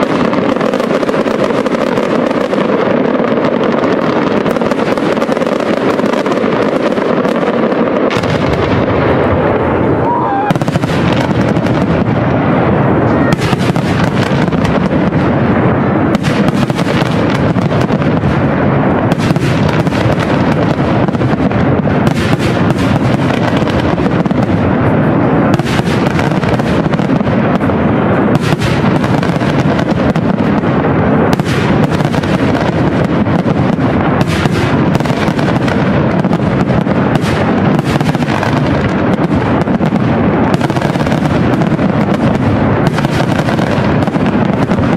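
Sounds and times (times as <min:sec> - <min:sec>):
fireworks bursting: 0:00.0 - 0:44.9.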